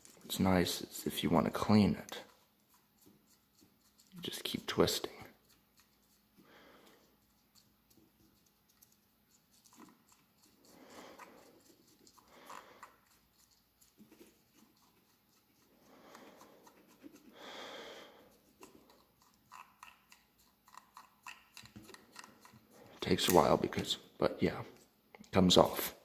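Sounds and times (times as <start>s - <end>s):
soft breaths: 6.3s - 8.0s, 10.4s - 13.3s, 14.0s - 19.2s.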